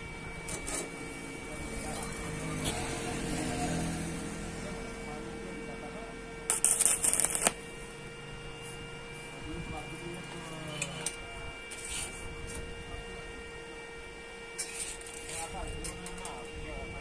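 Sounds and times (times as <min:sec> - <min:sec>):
steady electrical hum: 0:00.0 - 0:17.0
welding arc crackling: 0:06.5 - 0:08.1.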